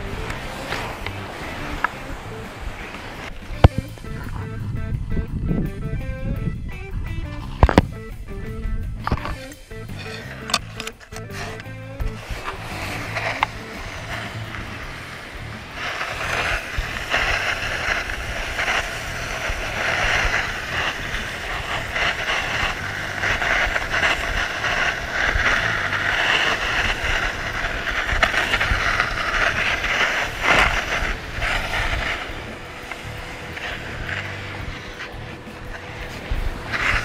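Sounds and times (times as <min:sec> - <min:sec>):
scraping hiss of sliding on snow: 0:00.0 - 0:04.5, 0:09.0 - 0:37.0
crunches of snow and ice: 0:09.1 - 0:37.0.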